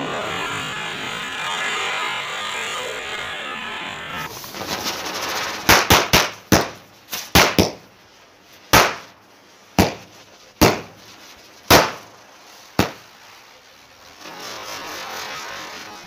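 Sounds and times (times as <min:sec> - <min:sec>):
firecracker fuse hissing: 0:00.0 - 0:16.0
firecracker bangs: 0:04.5 - 0:07.9, 0:08.7 - 0:13.3.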